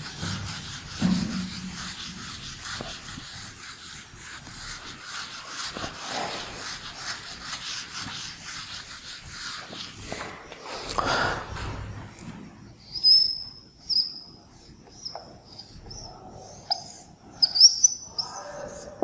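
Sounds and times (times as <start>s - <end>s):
cloth rubbing on whiteboard: 0.0s - 11.0s.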